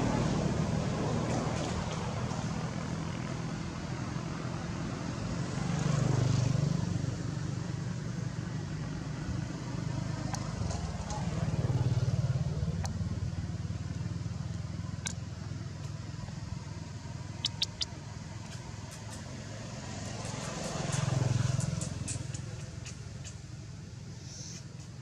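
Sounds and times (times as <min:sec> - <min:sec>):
vehicle engine hum: 0:00.0 - 0:25.0
sharp clicks: 0:17.4 - 0:17.9.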